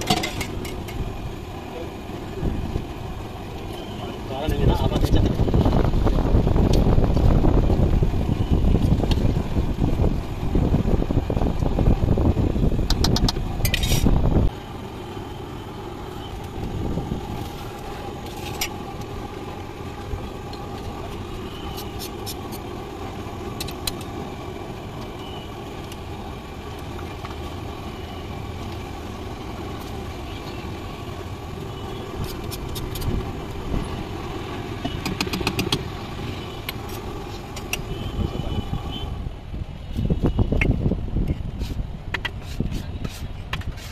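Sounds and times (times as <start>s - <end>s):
traffic going past: 0.0s - 43.9s
metal ladle scraping on iron griddle: 13.6s - 14.1s.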